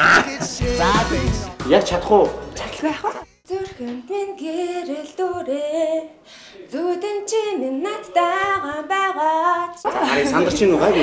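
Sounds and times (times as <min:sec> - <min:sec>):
young woman singing: 0:02.8 - 0:10.5.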